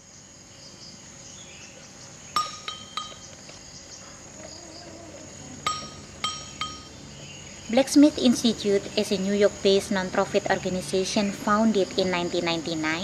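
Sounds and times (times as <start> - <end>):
insect drone: 0.0 - 13.0
bright metallic clinks: 2.4 - 3.3, 5.6 - 7.0.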